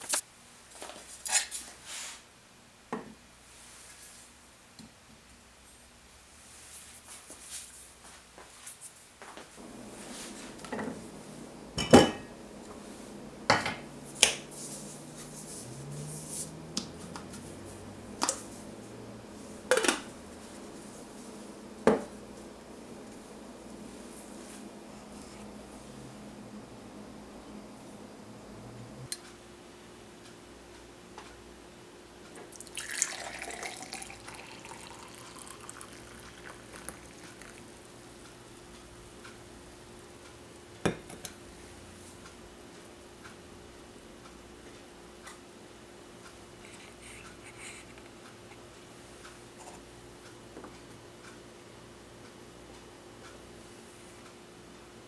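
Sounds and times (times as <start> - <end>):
coffee splashing into metal mug: 32.5 - 37.6
coffee trickling: 32.5 - 37.8.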